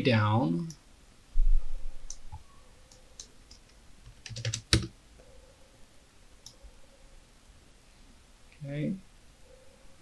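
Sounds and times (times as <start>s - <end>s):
keyboard keys clicking: 2.9s - 4.9s.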